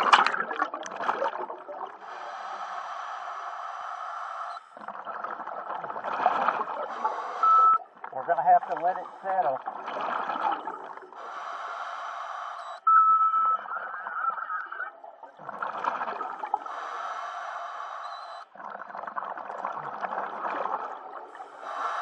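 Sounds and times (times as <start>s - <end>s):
gurgling exhaled bubbles: 0.0s - 2.2s, 4.8s - 11.4s, 13.4s - 16.8s, 18.4s - 22.0s
diver inhaling through regulator: 1.8s - 5.0s, 6.6s - 7.8s, 10.6s - 13.2s, 16.3s - 18.5s, 21.0s - 22.0s
brief whistling squeal: 18.0s - 18.5s.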